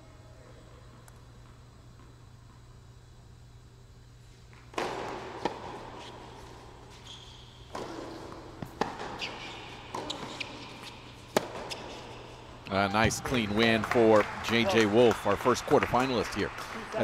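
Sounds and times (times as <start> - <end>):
racket striking tennis ball: 4.5 - 12.4
tennis ball bouncing: 4.5 - 14.8.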